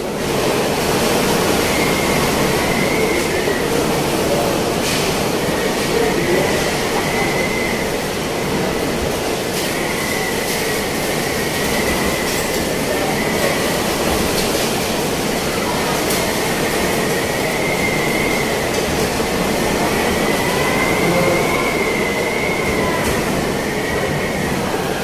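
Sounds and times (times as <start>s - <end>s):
thin high whistle: 1.6s - 4.4s, 5.9s - 8.0s, 16.8s - 19.1s, 19.7s - 24.9s.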